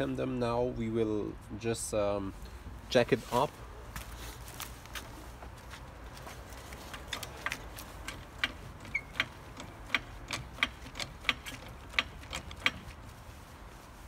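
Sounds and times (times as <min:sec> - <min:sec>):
trolley jack pumping clicks: 0:06.7 - 0:13.0.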